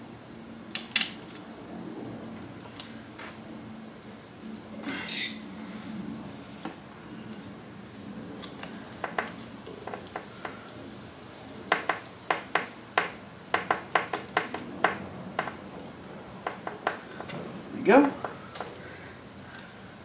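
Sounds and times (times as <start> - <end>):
steady high-pitched whine: 0.0 - 20.0.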